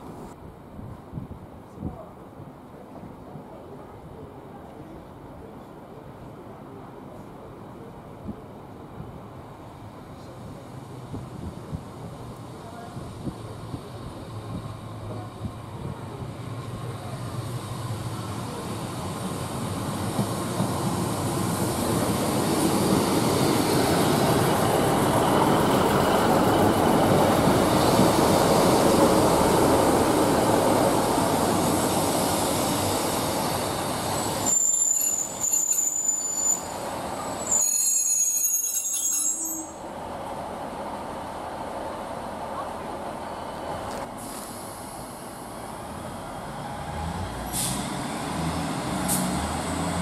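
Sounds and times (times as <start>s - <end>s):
diesel train passing: 5.0s - 50.0s
train wheels squealing: 32.7s - 39.9s.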